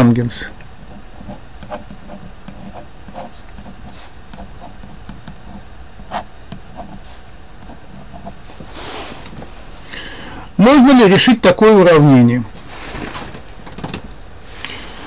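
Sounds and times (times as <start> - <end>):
pen scratching on paper: 0.8 - 8.4
hand rustling on paper: 0.9 - 9.5.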